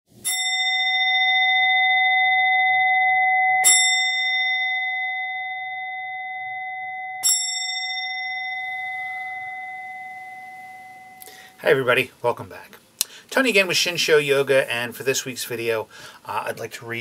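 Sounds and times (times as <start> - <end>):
meditation bell ringing: 0.1 - 11.8.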